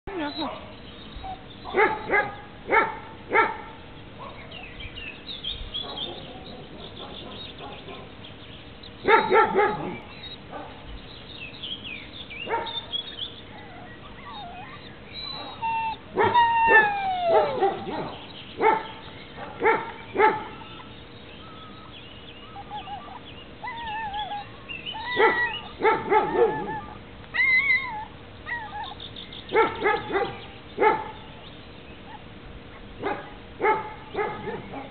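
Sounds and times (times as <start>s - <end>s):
dogs barking: 0.2s - 4.8s, 5.8s - 8.3s, 8.9s - 10.9s, 12.4s - 31.4s, 32.0s - 34.9s
dog yips and whimpering: 1.2s - 2.0s, 13.5s - 18.8s, 19.7s - 29.0s
dog whining: 13.4s - 18.1s, 20.2s - 29.0s.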